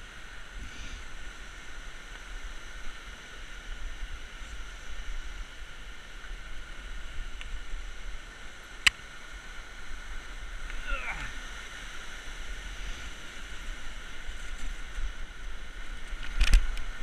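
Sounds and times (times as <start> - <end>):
river rushing over rocks: 0.0 - 17.0
bike rolling on gravel: 11.8 - 17.0.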